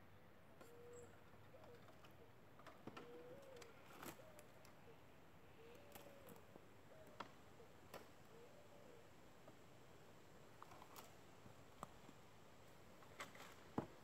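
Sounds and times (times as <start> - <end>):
dove cooing: 0.6 - 2.3, 2.9 - 9.1.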